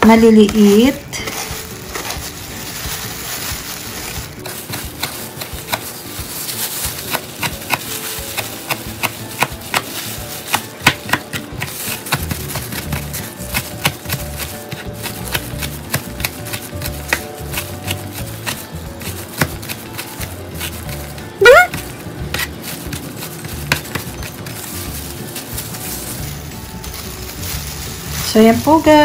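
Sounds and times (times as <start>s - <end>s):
knife chopping on cutting board: 7.0s - 24.2s.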